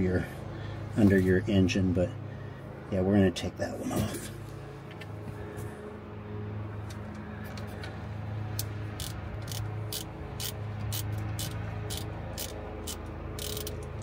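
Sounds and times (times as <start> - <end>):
ratchet clicking: 8.6 - 14.0.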